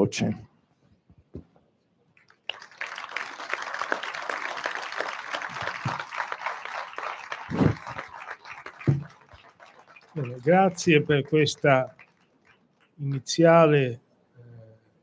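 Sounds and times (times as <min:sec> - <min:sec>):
audience applauding: 0:02.2 - 0:13.3.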